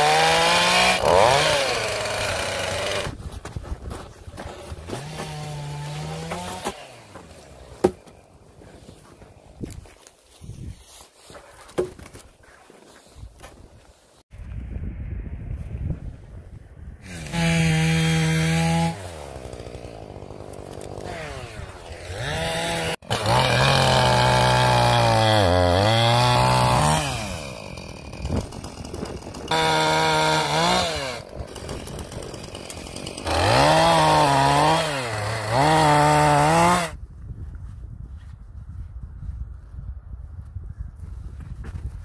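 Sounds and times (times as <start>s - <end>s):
chainsaw revving and cutting logs: 0.0s - 3.2s, 4.4s - 8.2s, 17.0s - 37.0s.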